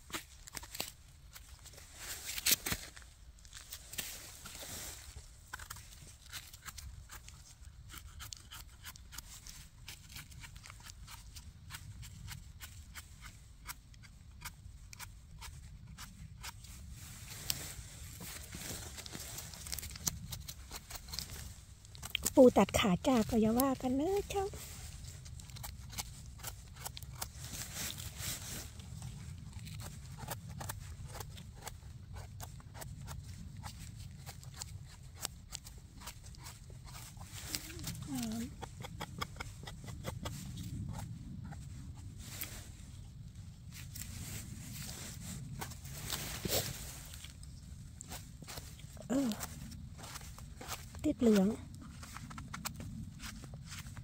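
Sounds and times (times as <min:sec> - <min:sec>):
knife scraping mushroom stems: 0:05.5 - 0:17.6, 0:18.2 - 0:41.6, 0:48.0 - 0:54.0.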